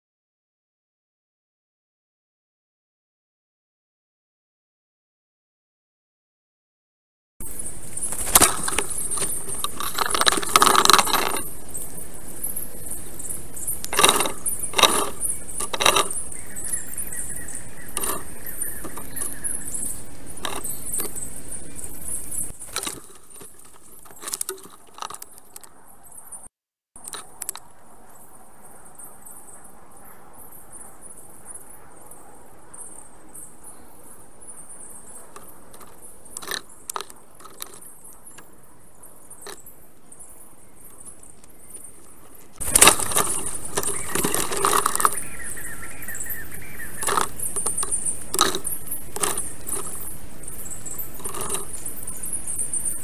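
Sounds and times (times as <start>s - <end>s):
stork working twigs in nest: 7.4s - 29.2s, 30.9s - 53.0s.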